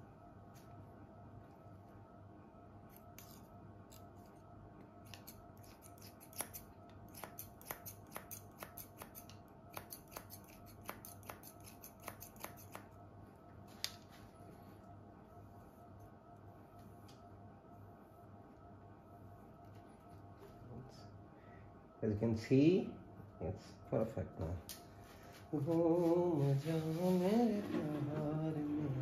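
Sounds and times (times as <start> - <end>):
scissors snipping hair: 5.0 - 13.0.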